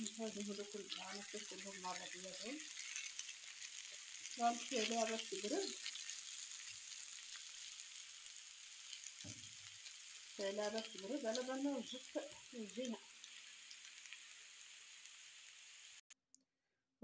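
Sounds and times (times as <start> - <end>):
food sizzling in a pan: 0.0 - 16.1
spatula stirring: 0.5 - 6.9.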